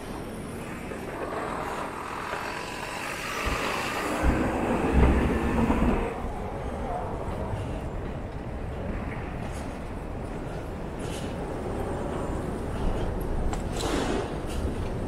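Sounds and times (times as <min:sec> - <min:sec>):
street traffic rumble: 0:00.0 - 0:15.0
heavy low knocks: 0:03.2 - 0:06.1.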